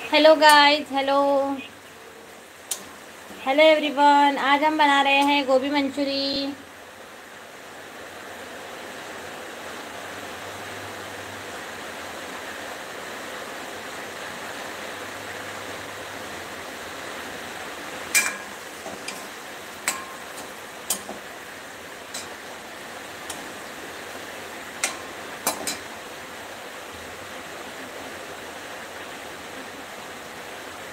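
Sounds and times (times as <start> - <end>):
food sizzling in oil: 0.0 - 6.1, 16.9 - 26.6
metal ladle clinking on wok: 18.1 - 19.2, 19.8 - 21.2.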